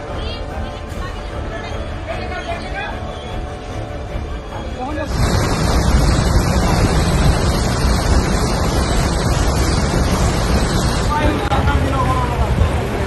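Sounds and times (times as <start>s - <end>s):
water rushing past: 5.0s - 13.0s
wind buffeting microphone: 5.1s - 13.0s.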